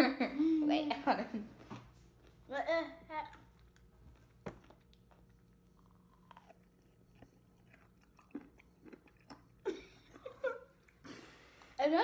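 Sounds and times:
person chewing food: 3.2 - 11.6.

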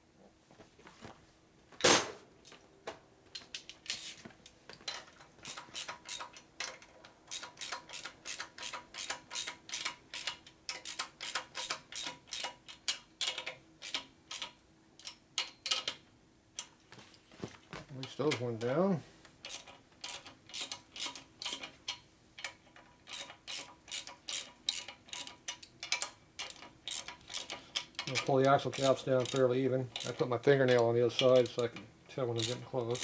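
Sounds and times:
ratchet wrench clicking: 5.4 - 6.3, 7.3 - 12.5, 19.4 - 21.7, 23.1 - 25.4, 26.4 - 29.4, 30.0 - 30.2, 32.4 - 33.0.

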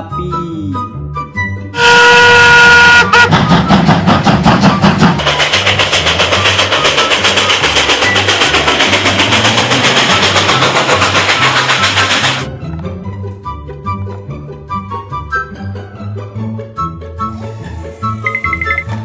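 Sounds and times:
steam locomotive whistle: 1.8 - 3.8
locomotive exhaust chuffs: 1.8 - 12.5.

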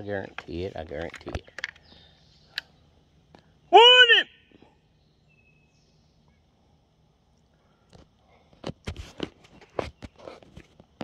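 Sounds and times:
phone handling rustles: 0.4 - 1.9.

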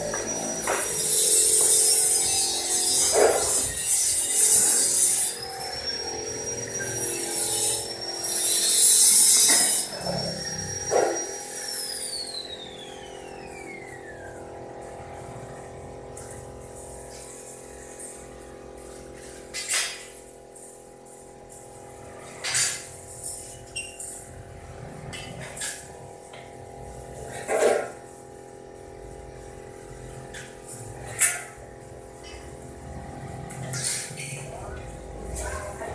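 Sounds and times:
sharp metal clinks: 0.0 - 12.3
hissing grinding bursts: 0.0 - 14.1
power tool whining: 0.0 - 35.9.

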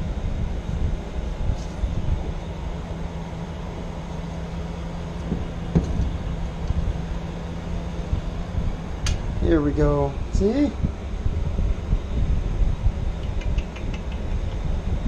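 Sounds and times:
truck engine idling: 1.0 - 10.1.

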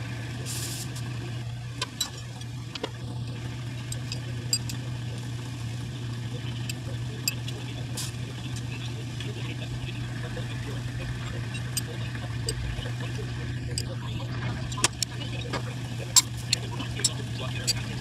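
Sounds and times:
workshop machinery hum: 0.0 - 18.0.

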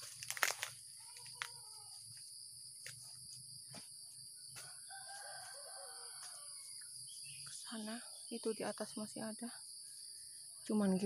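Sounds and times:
leaves rustling and clicking: 0.0 - 3.4
insects droning: 0.0 - 11.0.

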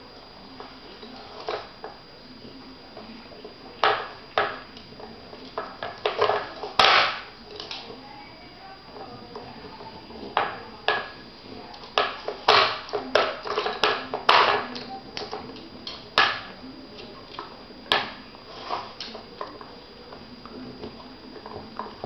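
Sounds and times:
plastic cups knocking on wooden board: 12.0 - 14.7.

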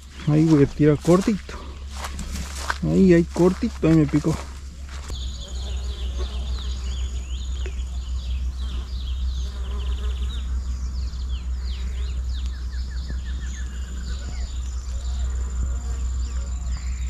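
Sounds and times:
low rumble: 0.0 - 9.4
birds chirping and calling: 0.0 - 17.0
high insect buzz: 0.0 - 17.0.

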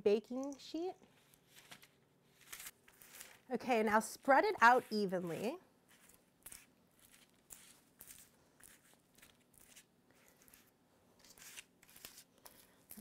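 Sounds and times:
spatula scraping popcorn on baking sheet: 2.9 - 13.0.

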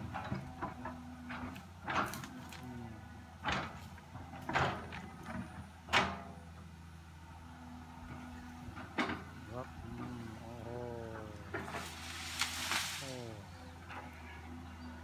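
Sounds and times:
excavator running: 0.0 - 15.0.

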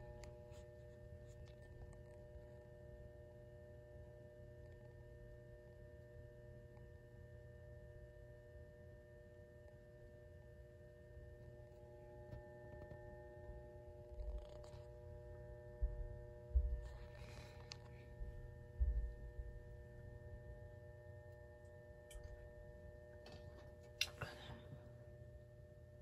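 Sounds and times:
lamp ballast hum: 16.8 - 25.5.

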